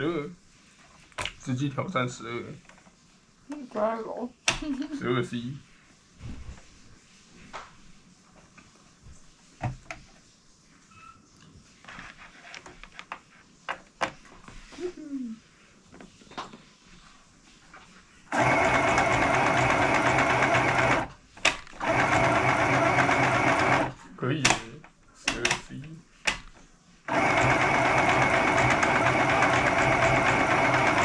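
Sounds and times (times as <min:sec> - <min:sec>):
sewing machine stitching: 0:18.3 - 0:24.6, 0:27.1 - 0:31.0.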